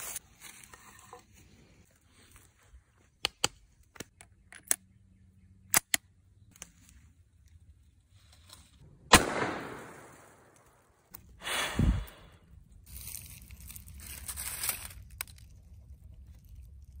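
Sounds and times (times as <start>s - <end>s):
revolver gunshot with echo: 9.1s - 10.5s.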